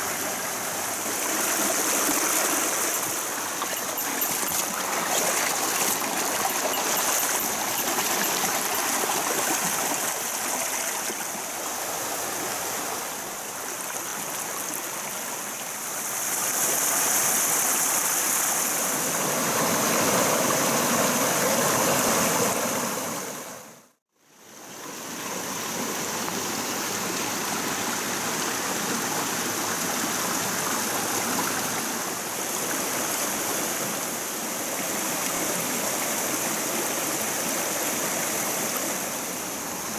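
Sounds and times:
stream rushing over stones: 0.0s - 23.4s.

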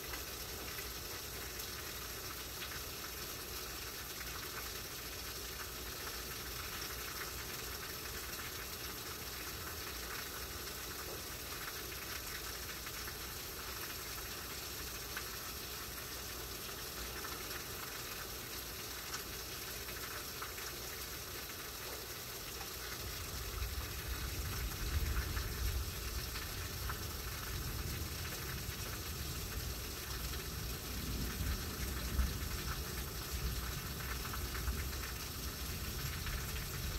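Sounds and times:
heavy rain hissing: 0.0s - 36.9s
low rumble of wind gusts: 23.1s - 36.9s.

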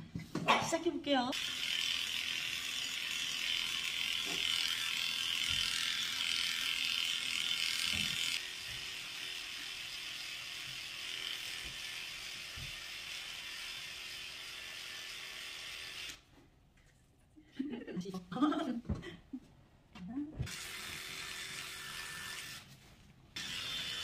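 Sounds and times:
electric clipper buzzing: 1.3s - 16.2s, 20.4s - 22.7s, 23.4s - 24.0s.

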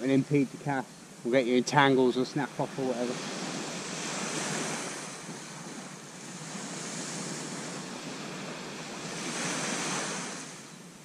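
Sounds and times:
surf washing on a beach: 0.0s - 11.0s
wind on microphone: 2.4s - 10.8s.

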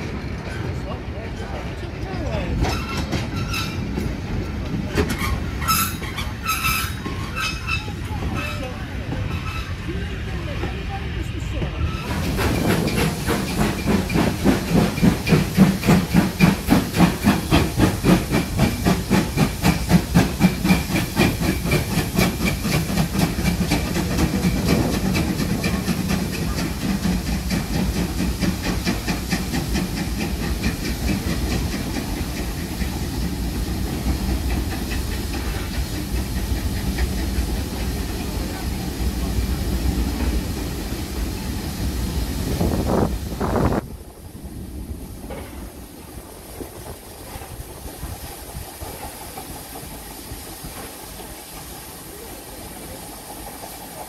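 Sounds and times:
steam hissing: 11.5s - 54.0s
steam locomotive exhaust beats: 11.5s - 54.0s.

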